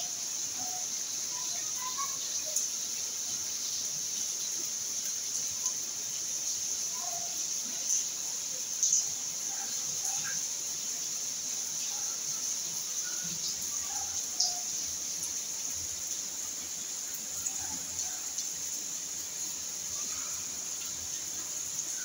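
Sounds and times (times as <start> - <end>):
faint bird chirps: 0.0 - 3.4
steady high-pitched hiss: 0.0 - 22.0.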